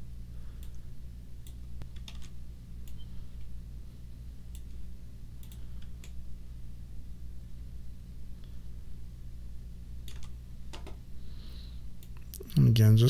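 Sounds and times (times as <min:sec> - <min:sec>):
steady low hum: 0:00.0 - 0:13.0
computer mouse clicks: 0:01.4 - 0:03.1, 0:05.4 - 0:06.2, 0:10.0 - 0:11.0.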